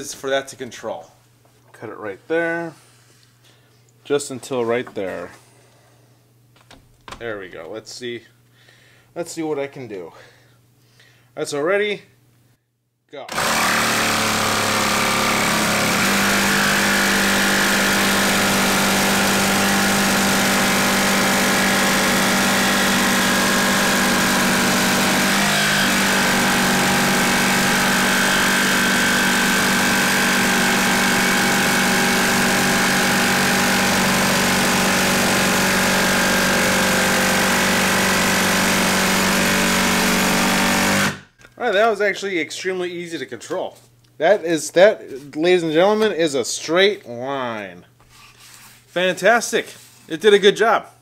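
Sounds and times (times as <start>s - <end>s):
jigsaw sawing wood: 13.3s - 41.3s.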